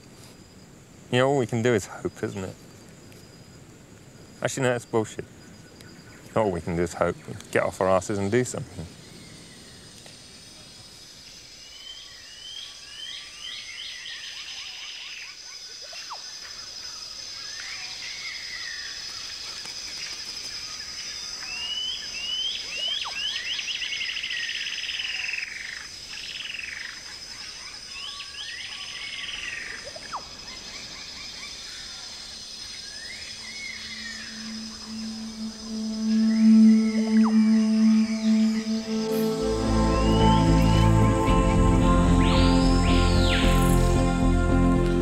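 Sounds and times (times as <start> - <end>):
high-pitched insect drone: 32.4 - 44.3
quick rising chirped calls: 32.9 - 44.2.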